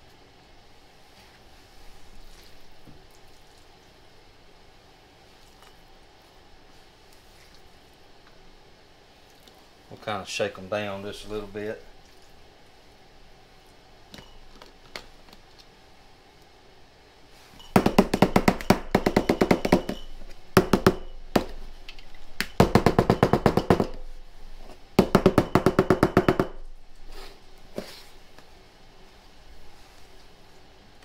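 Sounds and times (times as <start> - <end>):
glass jars knocking on countertop: 17.7 - 21.1.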